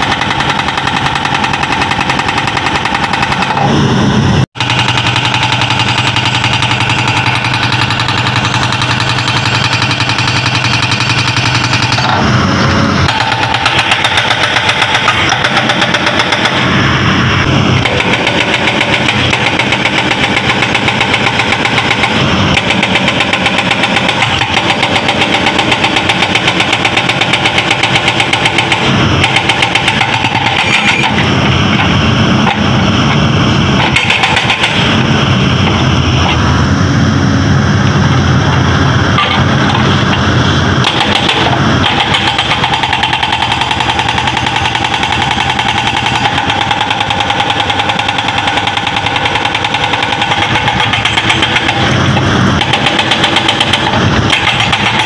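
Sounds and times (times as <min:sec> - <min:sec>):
hydraulic rock breaker pounding stone: 0:00.0 - 0:03.9, 0:04.6 - 0:16.9, 0:17.6 - 0:36.4, 0:38.5 - 0:55.0
diesel engine running: 0:00.0 - 0:55.0.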